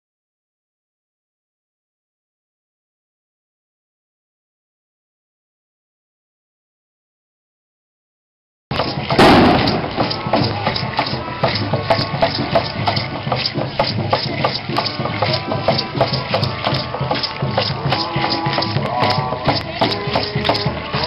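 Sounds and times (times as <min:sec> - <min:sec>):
drumming: 0:08.7 - 0:21.0
hand rattles shaken: 0:08.7 - 0:21.0
loud drum hit: 0:09.1 - 0:10.6.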